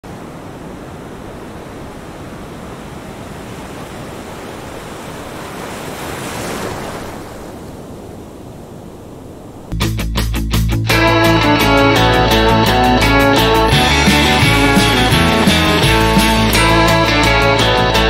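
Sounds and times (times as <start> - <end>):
surf breaking on beach: 0.0 - 9.7.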